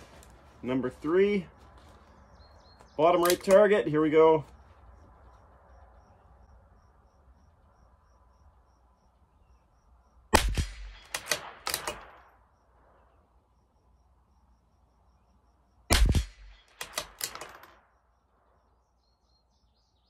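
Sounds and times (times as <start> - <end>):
rifle bolt clicks: 3.2 - 3.6, 10.9 - 12.2, 16.2 - 17.8
rifle shots: 10.3 - 12.4, 15.9 - 17.9.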